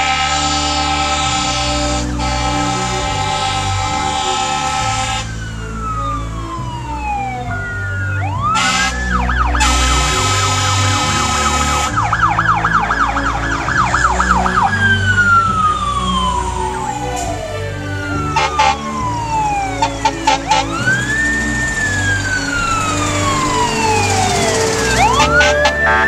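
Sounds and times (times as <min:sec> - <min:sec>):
air horn blasts: 0:00.0 - 0:05.4, 0:08.5 - 0:12.2, 0:18.3 - 0:19.2, 0:19.8 - 0:22.0, 0:22.6 - 0:26.0
diesel engines rumbling: 0:00.0 - 0:26.0
siren wailing: 0:00.0 - 0:26.0.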